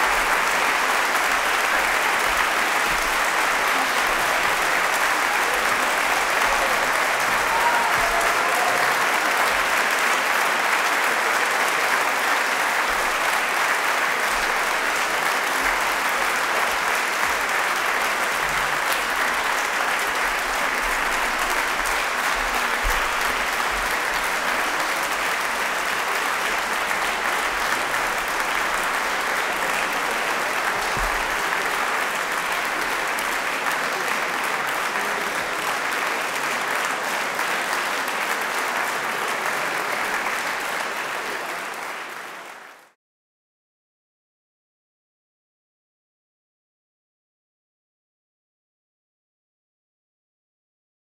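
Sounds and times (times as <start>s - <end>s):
audience applauding: 0.0s - 43.0s.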